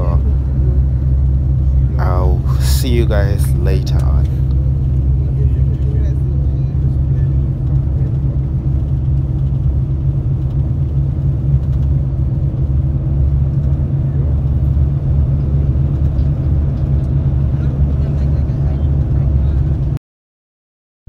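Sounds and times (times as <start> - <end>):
coach road and engine rumble: 0.0 - 20.0.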